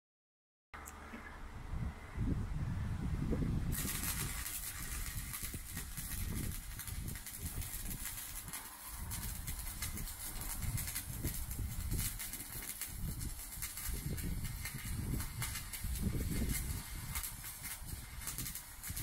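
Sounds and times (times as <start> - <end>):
arc welding hiss and crackle: 3.7 - 19.0.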